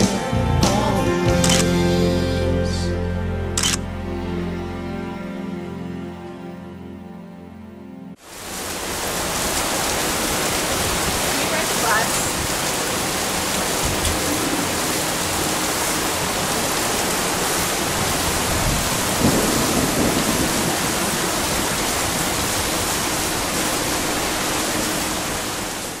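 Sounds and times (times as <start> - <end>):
heavy rain pouring: 8.2 - 26.0
low rumble of thunder: 17.9 - 22.8.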